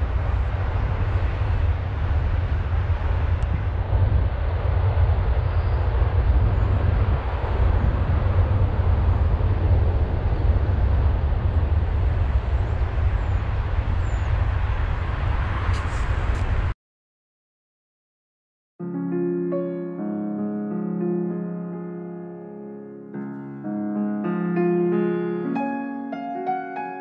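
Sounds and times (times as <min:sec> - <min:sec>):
wind buffeting microphone: 0:00.0 - 0:16.7.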